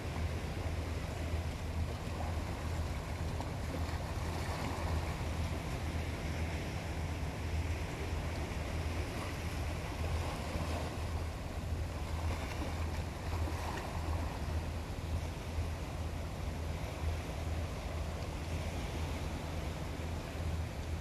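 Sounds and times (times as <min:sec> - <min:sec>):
waves lapping among rocks: 0:00.0 - 0:20.4
low hum: 0:00.0 - 0:21.0.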